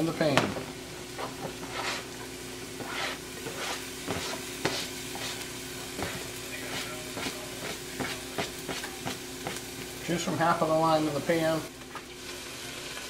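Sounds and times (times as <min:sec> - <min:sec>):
steady low hum: 0:00.0 - 0:11.8
light sizzle: 0:00.0 - 0:13.0
scraping on plastic cutting mat: 0:01.2 - 0:02.1, 0:02.8 - 0:05.4.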